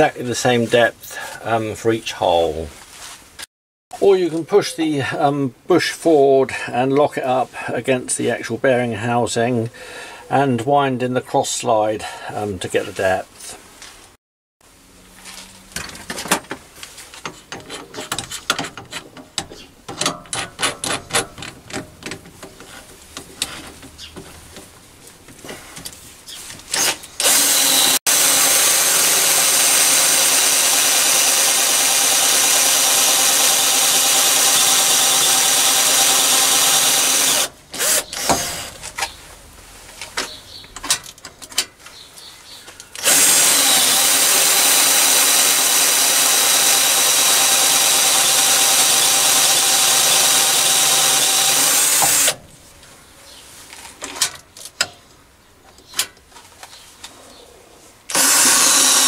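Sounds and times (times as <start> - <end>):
lathe chuck clicks and knocks: 17.3 - 22.7
drill motor running: 26.8 - 38.7, 43.0 - 52.4, 58.1 - 59.0.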